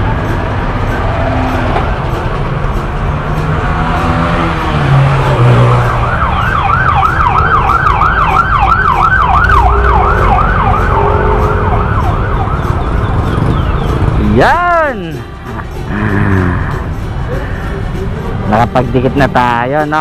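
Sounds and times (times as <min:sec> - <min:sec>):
siren yelping: 0:05.7 - 0:14.9.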